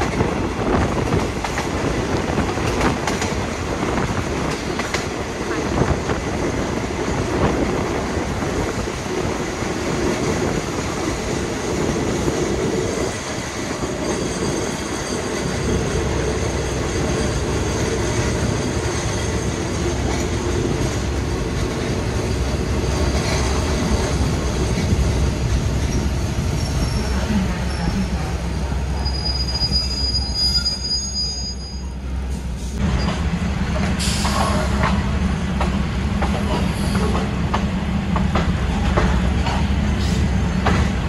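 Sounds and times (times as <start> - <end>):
train wheels rolling on rails: 0.0 - 41.0
high-pitched wheel squeal: 29.0 - 32.0.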